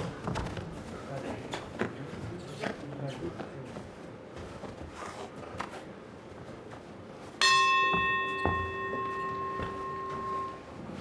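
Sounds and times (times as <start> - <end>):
sharp knocks: 7.4 - 10.6
boxing ring bell ringing: 7.4 - 11.0.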